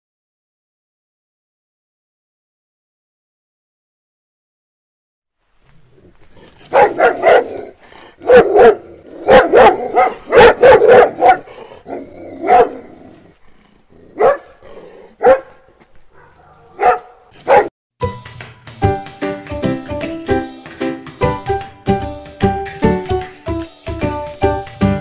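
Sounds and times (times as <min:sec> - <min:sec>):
dog barking: 0:06.7 - 0:13.1, 0:14.1 - 0:17.7.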